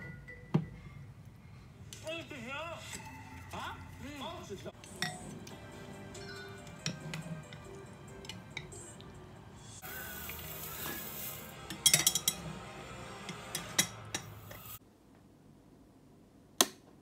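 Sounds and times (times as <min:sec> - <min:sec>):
utensils clinking on ceramic bowl: 0:11.7 - 0:12.5, 0:13.2 - 0:14.4.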